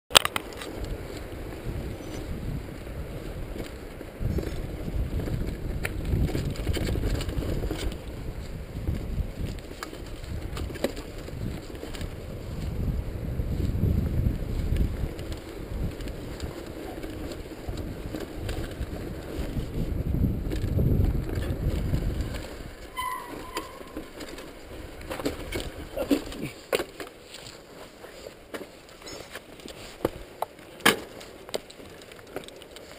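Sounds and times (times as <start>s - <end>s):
bike clicks and rattles: 0.1s - 32.9s
rumble of bike tyres: 0.1s - 32.9s
wind buffeting microphone: 0.5s - 26.6s.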